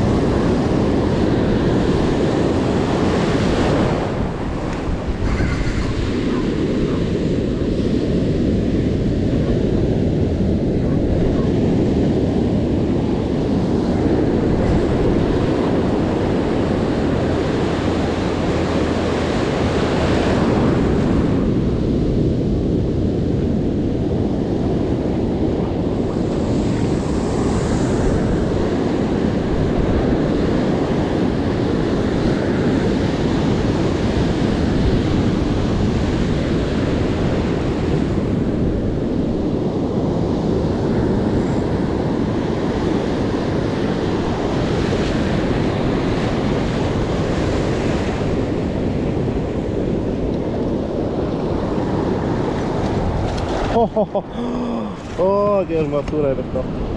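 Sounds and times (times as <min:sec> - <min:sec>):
wind rumble on microphone: 0:00.0 - 0:56.9
ocean surf hissing: 0:47.9 - 0:56.9.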